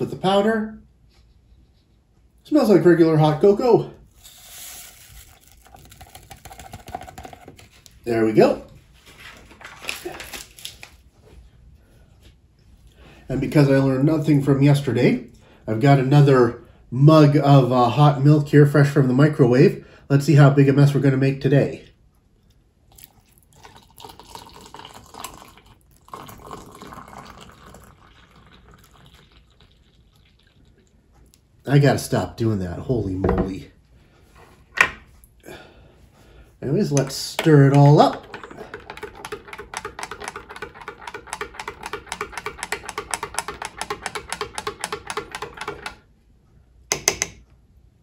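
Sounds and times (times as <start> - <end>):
milk pouring into a glass mug: 4.3 - 7.8, 22.9 - 31.1, 37.4 - 46.0.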